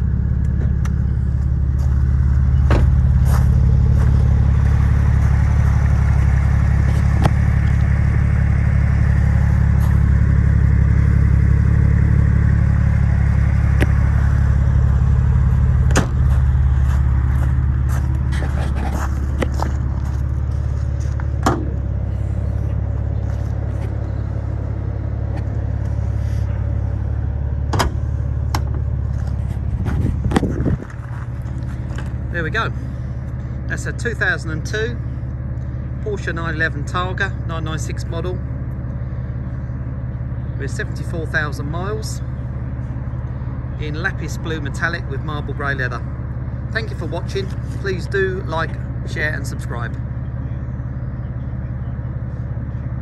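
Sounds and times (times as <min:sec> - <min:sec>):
car engine idling: 0:00.0 - 0:53.0
footsteps on gravel: 0:01.4 - 0:07.2, 0:15.4 - 0:21.4, 0:22.2 - 0:24.0, 0:29.0 - 0:32.4.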